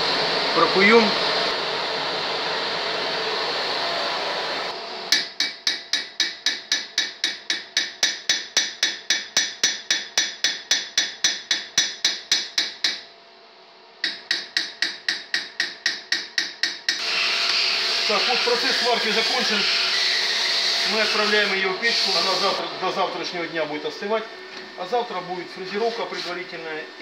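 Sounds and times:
steady hum: 0:00.0 - 0:27.0
small hammer striking metal: 0:05.1 - 0:13.0, 0:14.0 - 0:17.0.

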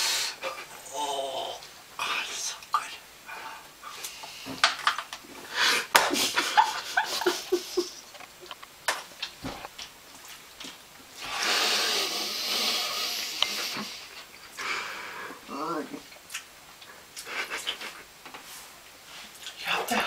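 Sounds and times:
man moaning with enjoyment: 0:00.8 - 0:01.6
breathing: 0:05.4 - 0:05.9, 0:14.6 - 0:15.4.

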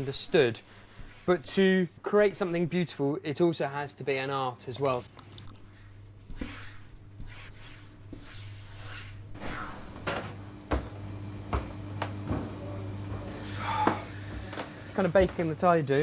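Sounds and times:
dough mixing by hand: 0:00.0 - 0:02.9, 0:04.9 - 0:09.9.

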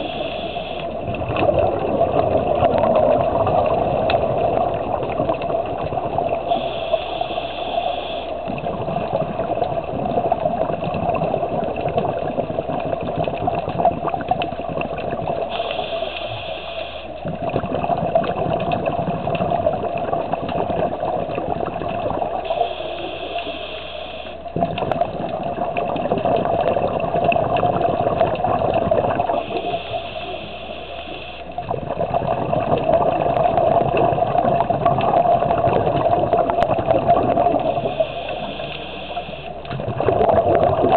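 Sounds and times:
regulator inhalation hiss: 0:00.0 - 0:00.9, 0:06.5 - 0:08.4, 0:15.5 - 0:17.2, 0:22.5 - 0:24.5, 0:29.3 - 0:31.5, 0:37.6 - 0:39.6
bubbling exhalation: 0:00.0 - 0:07.0, 0:08.0 - 0:15.8, 0:17.2 - 0:22.8, 0:24.5 - 0:30.9, 0:31.5 - 0:40.9
underwater noise: 0:00.0 - 0:40.9.

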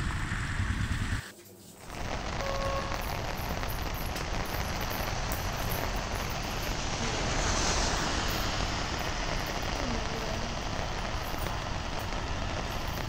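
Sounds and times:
heavy rain: 0:01.8 - 0:13.0
road traffic: 0:01.8 - 0:13.0
short horn beep: 0:02.4 - 0:03.1.

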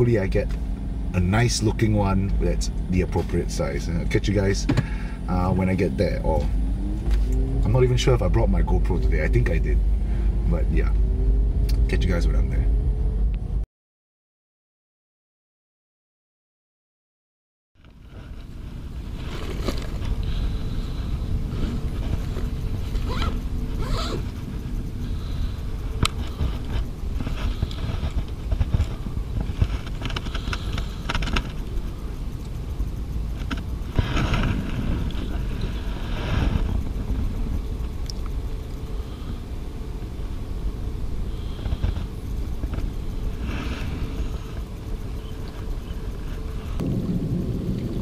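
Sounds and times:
bag rustling and scraping: 0:17.9 - 0:24.8
wind buffeting microphone: 0:18.0 - 0:48.0.

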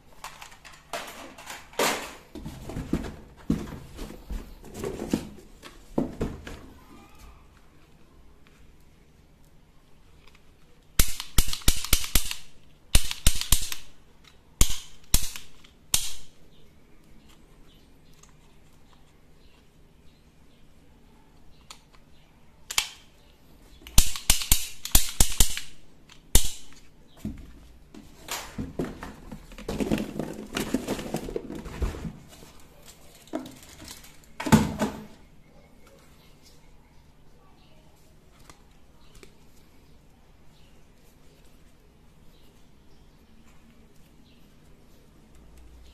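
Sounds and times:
plastic rattling: 0:00.2 - 0:04.0, 0:28.2 - 0:32.1
toy gun firing rapid clicks: 0:11.0 - 0:13.9, 0:14.6 - 0:16.2, 0:24.0 - 0:25.8.

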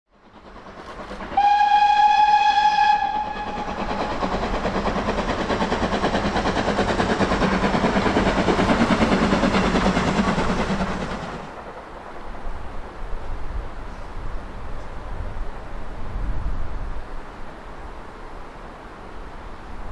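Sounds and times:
steam train running past: 0:00.1 - 0:19.9
steam locomotive whistle: 0:01.3 - 0:04.3.

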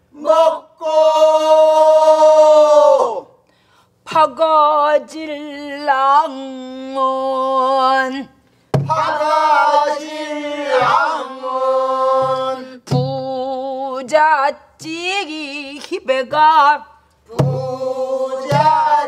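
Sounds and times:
group singing together: 0:00.1 - 0:03.2, 0:08.8 - 0:13.7, 0:17.3 - 0:19.0
barrel drum strokes: 0:08.7 - 0:09.2, 0:17.3 - 0:18.9.

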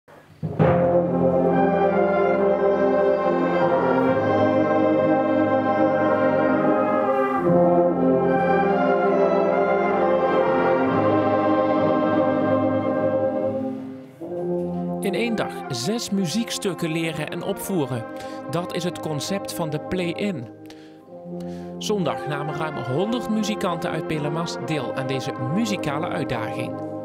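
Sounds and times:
wind band playing held chords: 0:00.3 - 0:27.0.

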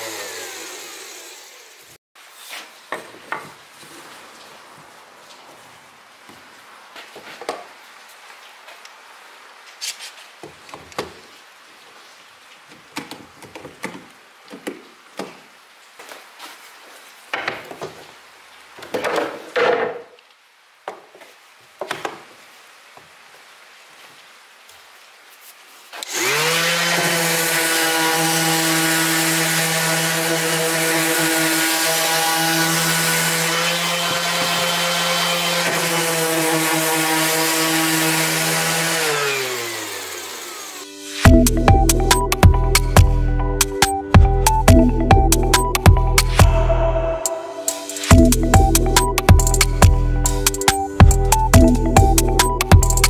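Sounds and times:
cordless drill running: 0:00.0 - 0:01.8.

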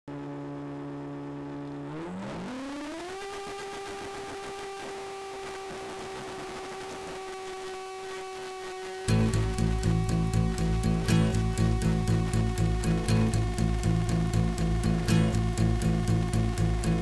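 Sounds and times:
model jet motors whining: 0:00.5 - 0:09.0.

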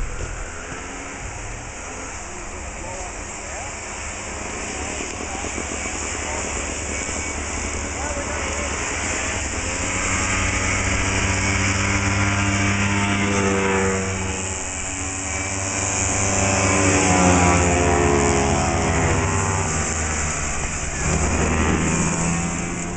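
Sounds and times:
snowmobile engines racing past: 0:00.0 - 0:22.9.

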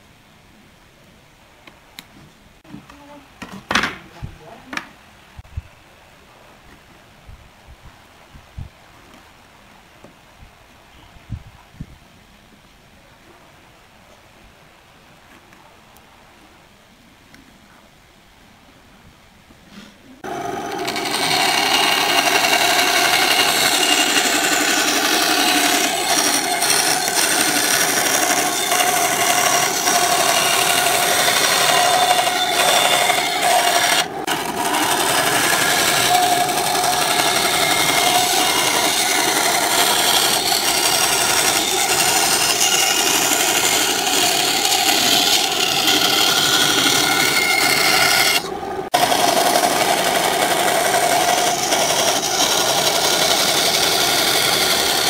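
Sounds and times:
saw blade hissing through wood: 0:19.7 - 0:55.0
band saw motor humming: 0:20.2 - 0:55.0.

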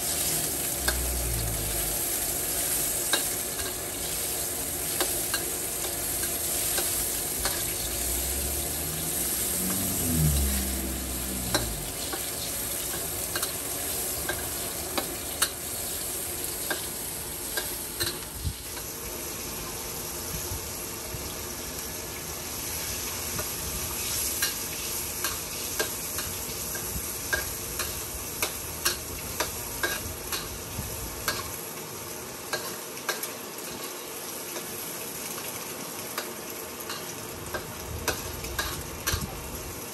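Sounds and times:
food sizzling in a wok: 0:00.0 - 0:39.9
low rising hum: 0:07.6 - 0:12.4.

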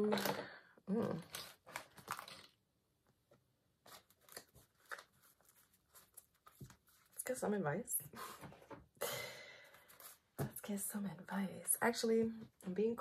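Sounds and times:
cards shuffling: 0:03.8 - 0:07.2.

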